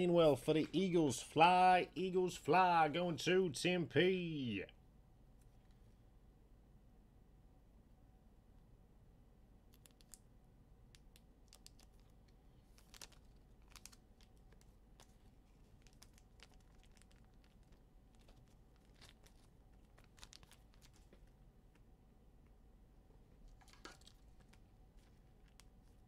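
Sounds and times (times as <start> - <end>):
cards and packaging rustling: 11.1 - 21.4, 23.4 - 26.0.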